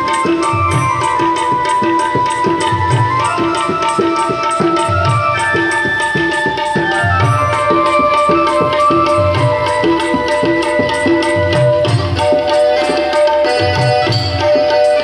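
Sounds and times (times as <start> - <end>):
tabla playing steady beat: 0.0 - 15.0.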